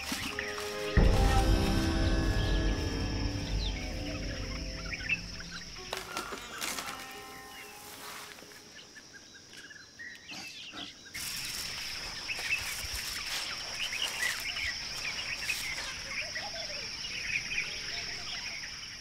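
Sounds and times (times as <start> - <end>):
high insect drone: 0.0 - 9.4.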